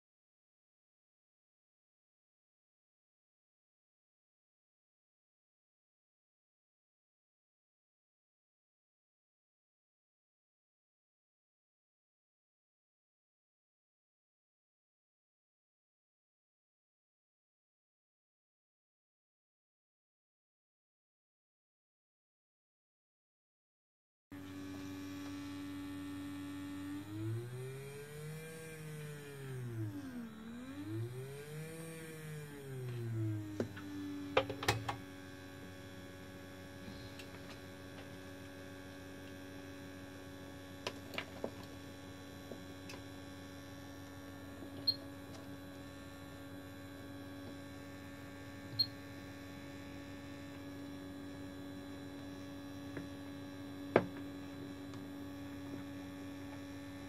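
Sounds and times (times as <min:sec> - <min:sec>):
electric motor whine: 0:24.4 - 0:57.0.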